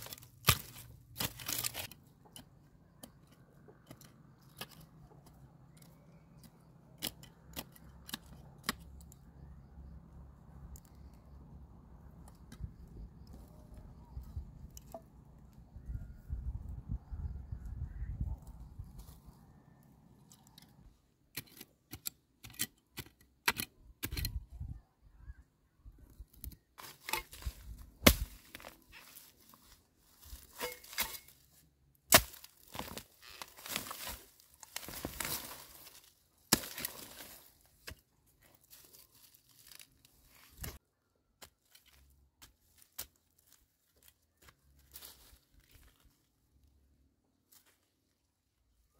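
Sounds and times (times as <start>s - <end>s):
dry stems crackling and tearing: 0.0s - 3.2s, 26.4s - 31.4s, 32.1s - 40.8s
soil being scraped by hand: 0.0s - 9.1s, 26.5s - 40.8s.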